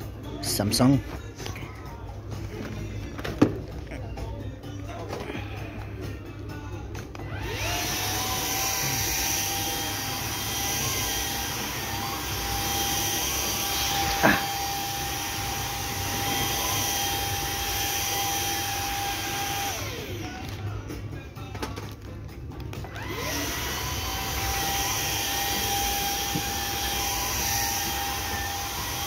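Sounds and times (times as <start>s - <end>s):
vacuum cleaner motor whining: 7.2s - 20.6s, 22.8s - 29.0s.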